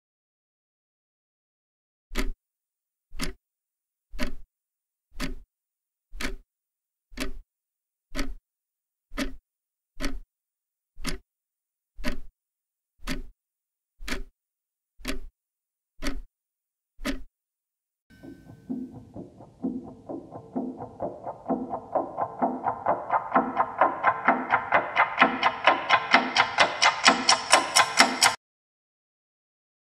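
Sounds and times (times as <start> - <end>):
clock ticking: 2.1 - 2.4, 3.1 - 3.4, 4.1 - 4.5, 5.1 - 5.5, 6.1 - 6.4, 7.1 - 7.4, 8.1 - 8.4, 9.1 - 9.4, 10.0 - 10.3, 11.0 - 11.2, 12.0 - 12.3, 13.0 - 13.3, 14.0 - 14.3, 15.0 - 15.3, 16.0 - 16.3, 17.0 - 17.3, 18.1 - 28.4.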